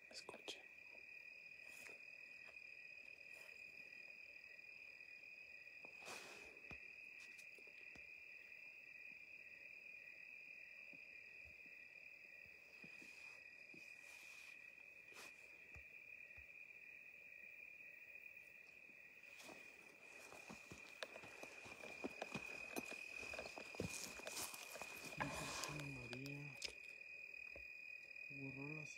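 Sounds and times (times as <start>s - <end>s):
crickets chirping: 0.0s - 28.9s
soft rustles: 19.3s - 26.2s.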